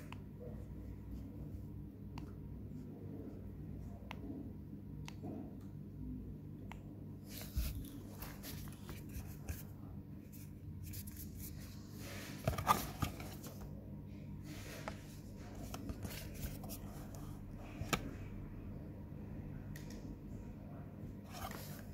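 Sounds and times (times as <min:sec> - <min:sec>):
steady low hum: 0:00.0 - 0:21.9
cardboard box rustling: 0:12.4 - 0:13.6.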